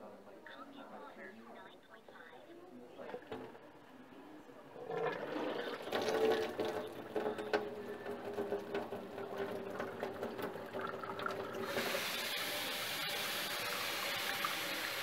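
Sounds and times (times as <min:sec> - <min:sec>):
mechanical hum: 0:00.0 - 0:15.0
water running into sink: 0:04.8 - 0:15.0.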